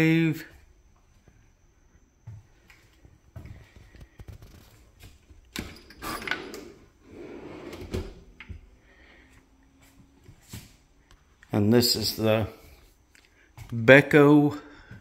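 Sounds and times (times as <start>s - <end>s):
drawer sliding open and shut: 5.5s - 8.5s.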